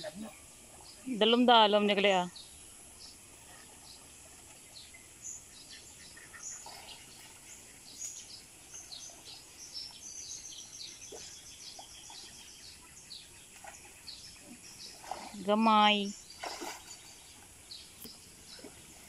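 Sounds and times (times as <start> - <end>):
faint steady high hiss: 0.0 - 6.5
small birds chirping: 0.0 - 19.0.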